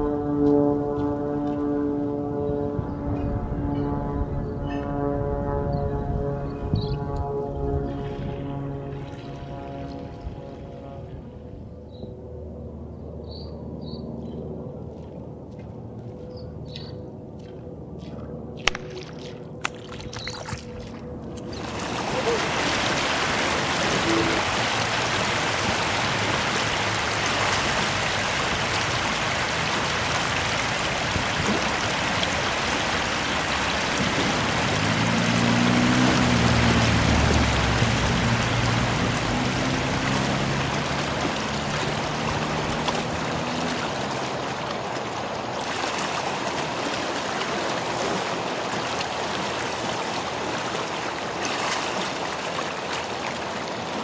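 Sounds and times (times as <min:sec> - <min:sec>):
low hum: 0:00.0 - 0:46.1
river water rushing: 0:18.7 - 0:54.0.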